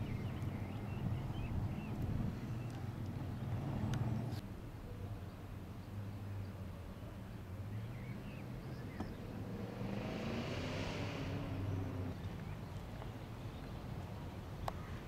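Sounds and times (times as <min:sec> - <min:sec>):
vehicle engine humming: 0:00.0 - 0:04.4, 0:05.8 - 0:15.0
vehicle passing rush: 0:00.0 - 0:04.4, 0:07.4 - 0:14.2.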